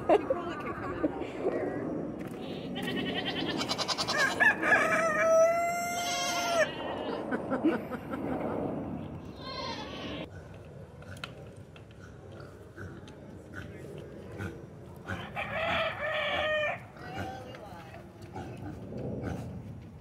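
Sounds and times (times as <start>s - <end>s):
rooster crowing: 4.0s - 6.7s, 15.4s - 16.8s.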